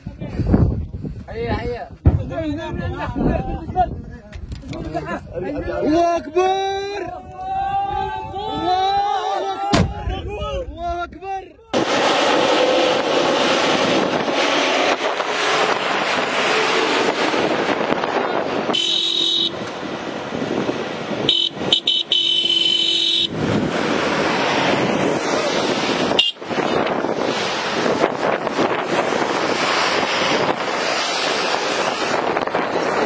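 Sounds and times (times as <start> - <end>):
wind noise on microphone: 0.0 - 12.1, 12.9 - 33.0
pickup trucks passing: 11.8 - 33.0
vehicle horn honking: 18.7 - 19.6, 21.3 - 23.4, 26.1 - 26.8.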